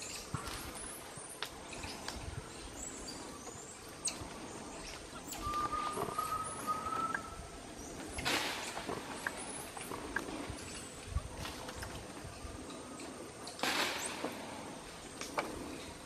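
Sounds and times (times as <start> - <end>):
branches and leaves rustling: 0.0 - 16.0
thin whistled note: 5.3 - 7.4.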